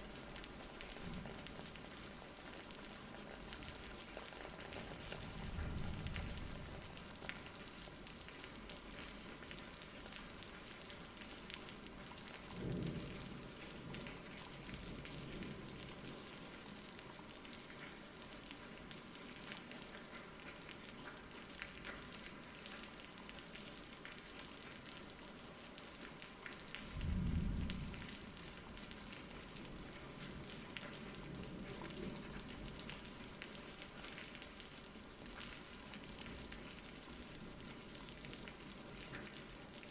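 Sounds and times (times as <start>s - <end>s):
rain patter: 0.0s - 39.9s
thunder rumble: 26.9s - 28.9s.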